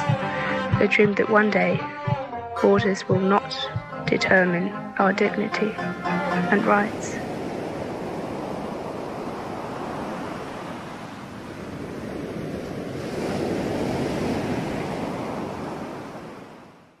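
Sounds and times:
wind noise: 0.0 - 4.8, 5.4 - 16.7
sea waves washing: 0.0 - 16.9.

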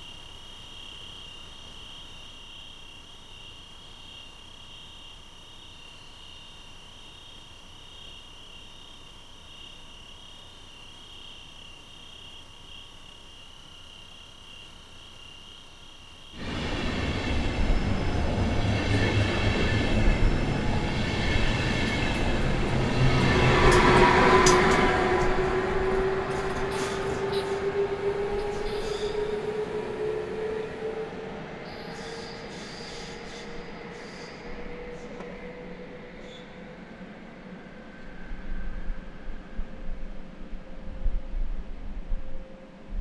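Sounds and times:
insects chirring: 0.0 - 35.2
train wheel squeal: 16.4 - 39.9
train wheels rumbling on rail: 16.4 - 42.1.

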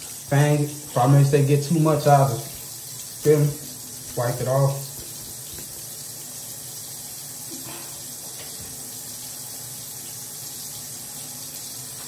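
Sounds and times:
faucet water splashing into basin: 0.0 - 12.0.

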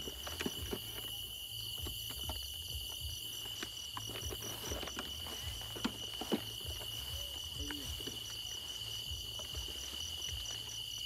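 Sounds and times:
higher pulsing insect trill: 0.0 - 11.0
steady high insect trill: 0.0 - 11.0
footsteps rustling through cornstalks: 2.8 - 11.0.

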